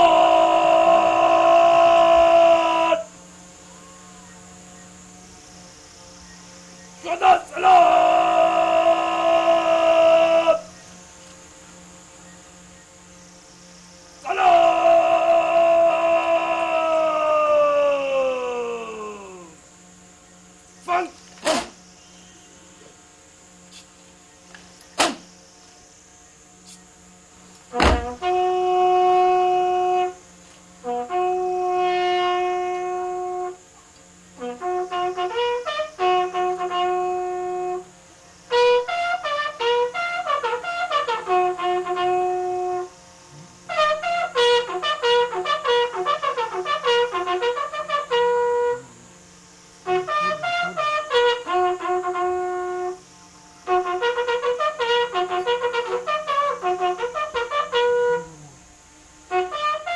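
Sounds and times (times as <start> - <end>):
military bugle call: 0.0 - 3.2, 7.0 - 10.8, 14.2 - 19.6, 27.7 - 30.2, 30.8 - 33.6, 34.4 - 37.9, 38.5 - 43.0, 43.7 - 49.0, 49.8 - 53.0, 53.6 - 58.5, 59.3 - 59.9.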